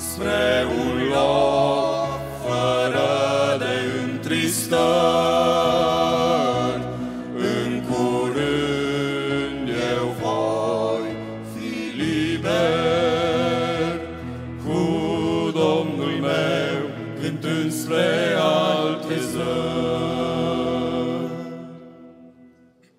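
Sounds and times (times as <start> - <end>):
male vocal quartet singing gospel: 0.0 - 22.0.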